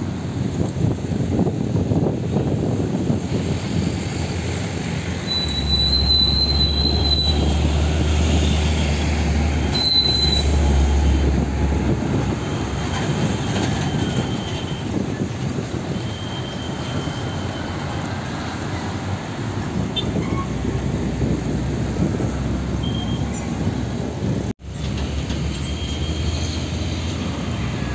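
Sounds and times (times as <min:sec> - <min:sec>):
high brake squeal: 0:05.2 - 0:08.9, 0:09.6 - 0:11.4, 0:12.3 - 0:19.0, 0:19.9 - 0:20.7, 0:22.8 - 0:23.6, 0:25.4 - 0:26.9.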